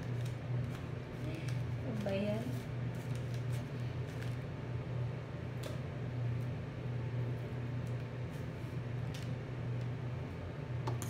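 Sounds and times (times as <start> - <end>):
foil paper crinkling: 0.0 - 4.5
fan motor hum: 0.0 - 11.0.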